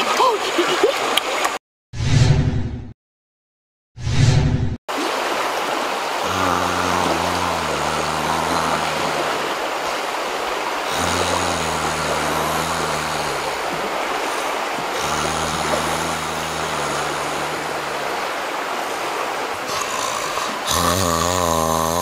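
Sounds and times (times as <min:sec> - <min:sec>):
river water rushing: 0:04.9 - 0:22.0.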